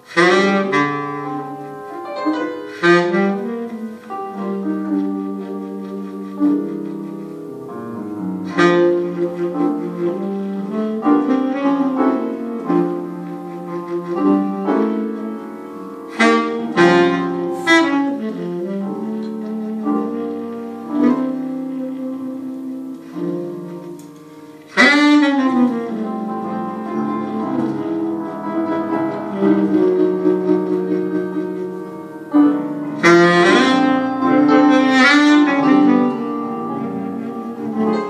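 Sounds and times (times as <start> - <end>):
piano chords: 0.0 - 38.0
saxophone melody: 0.0 - 38.0.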